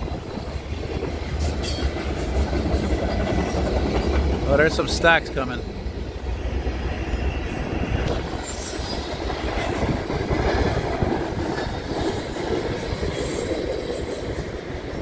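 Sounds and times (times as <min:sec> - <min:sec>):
wheel squeals: 0:00.0 - 0:02.0
train wheels rumbling on rail: 0:00.0 - 0:15.0.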